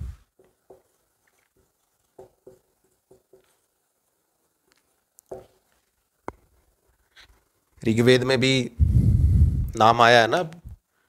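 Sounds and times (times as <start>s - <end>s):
marker writing on whiteboard: 0.2s - 3.7s.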